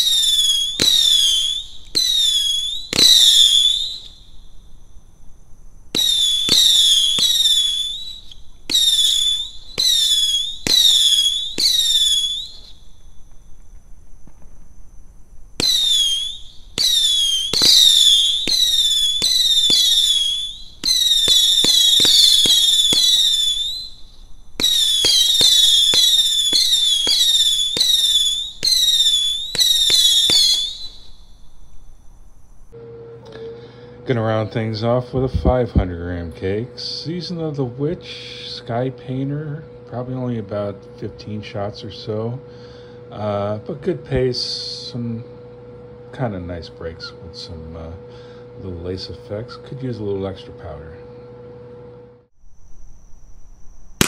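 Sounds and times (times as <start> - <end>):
firework shrill whistle: 0.0 - 32.8, 52.4 - 54.0
firework pops: 0.7 - 4.2, 5.9 - 14.8, 15.6 - 31.2.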